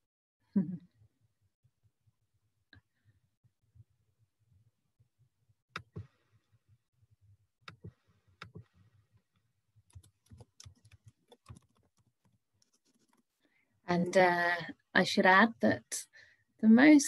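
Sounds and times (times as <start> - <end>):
keyboard typing: 9.9 - 13.2.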